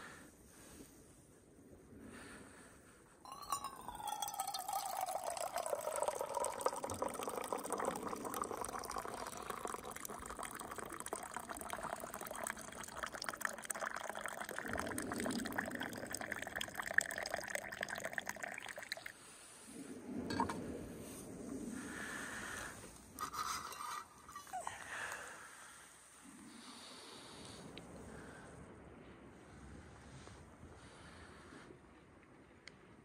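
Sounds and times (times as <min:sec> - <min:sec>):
hot drink pouring into mug: 0:03.3 - 0:19.1.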